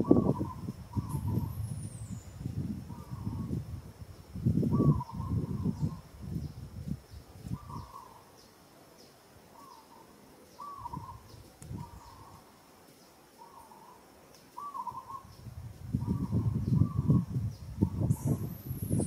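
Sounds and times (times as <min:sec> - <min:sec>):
bird calling: 0:02.9 - 0:03.5, 0:04.8 - 0:06.0, 0:07.6 - 0:12.5, 0:13.4 - 0:15.4.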